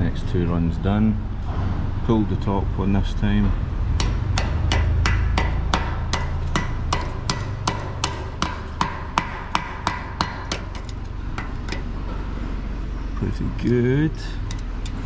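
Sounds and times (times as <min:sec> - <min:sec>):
sharp metal taps: 0:04.0 - 0:12.0.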